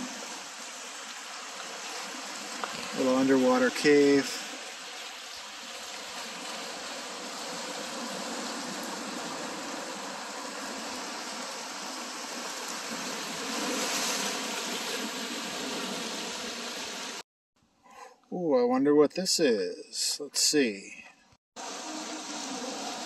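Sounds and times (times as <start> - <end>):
sea water surging against rocks: 0.0 - 17.2.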